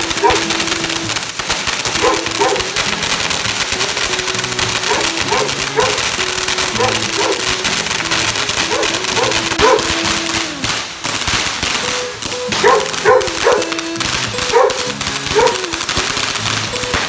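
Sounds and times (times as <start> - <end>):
firework crackling: 0.0 - 17.0
dog barking: 0.2 - 0.5, 2.0 - 2.7, 4.9 - 6.0, 6.8 - 7.5, 8.7 - 9.9, 12.6 - 13.7, 14.5 - 15.6.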